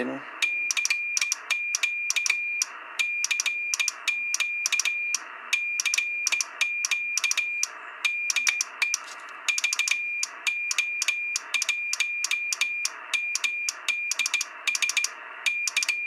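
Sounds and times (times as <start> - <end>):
key clicks: 0.4 - 2.4, 3.2 - 5.0, 5.8 - 7.5, 8.3 - 15.1, 15.7 - 16.0
morse code beeps: 0.4 - 16.0.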